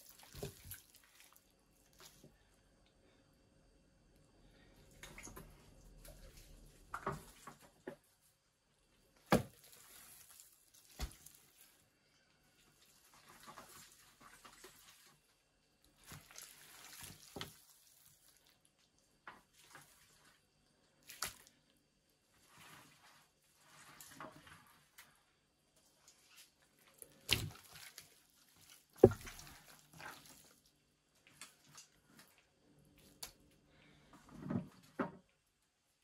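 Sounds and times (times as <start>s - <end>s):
wet squishing of raw meat: 0.0s - 2.4s, 9.3s - 11.9s, 16.0s - 18.9s, 19.5s - 21.7s, 26.0s - 33.4s.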